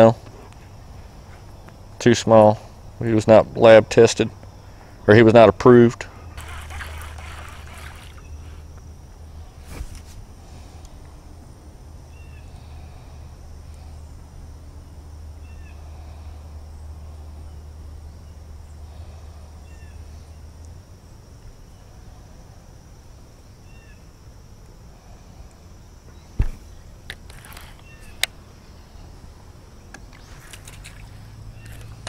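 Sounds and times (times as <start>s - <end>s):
bird chirping: 27.7s - 29.1s.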